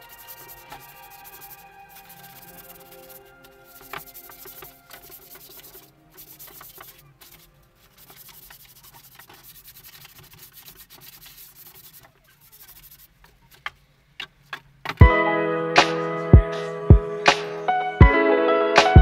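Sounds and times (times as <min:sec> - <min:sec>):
hand rubbing wood: 0:00.0 - 0:15.0.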